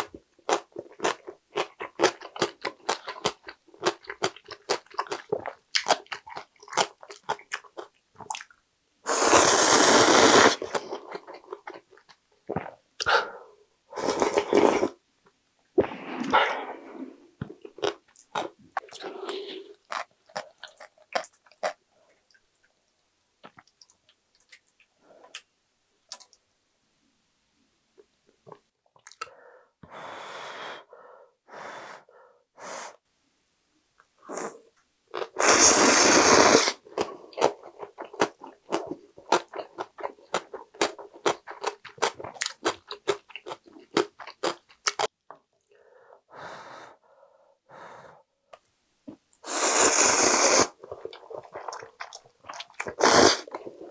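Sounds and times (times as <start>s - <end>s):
loud slurp of noodles: 9.1s - 10.7s, 14.0s - 15.0s, 35.3s - 36.8s, 49.4s - 50.8s, 52.8s - 53.6s
wet chewing clicks: 50.9s - 53.6s.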